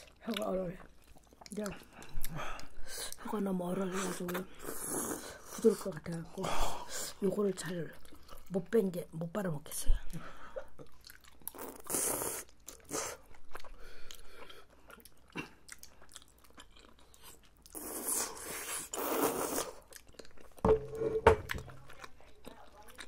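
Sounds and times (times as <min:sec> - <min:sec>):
wet chewing: 0:00.0 - 0:06.3, 0:10.7 - 0:20.6, 0:21.5 - 0:23.0.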